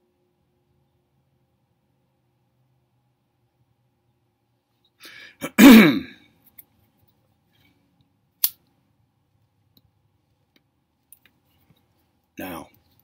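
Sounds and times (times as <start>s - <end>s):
man coughing: 5.4s - 6.2s.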